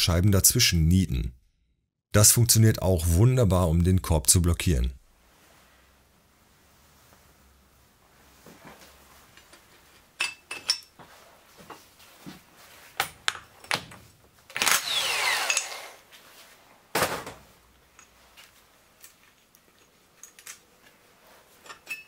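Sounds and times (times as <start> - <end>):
metal tools clinking: 10.2 - 11.0, 17.9 - 22.0
power wrench running: 14.5 - 16.0.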